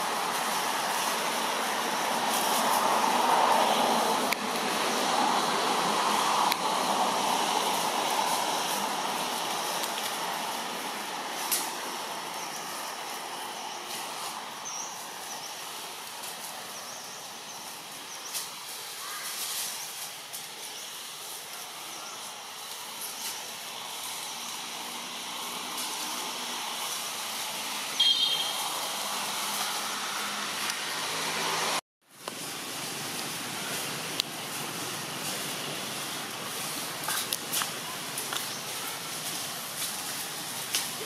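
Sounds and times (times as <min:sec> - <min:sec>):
forest background hiss: 0:00.0 - 0:41.0
faint clicks and rustles: 0:32.2 - 0:41.0.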